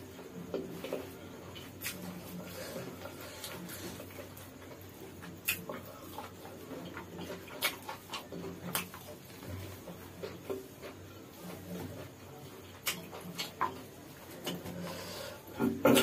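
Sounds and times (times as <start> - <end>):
chewing and mouth smacks: 0.5 - 14.8
sharp mouth clicks: 1.8 - 2.0, 5.4 - 5.8.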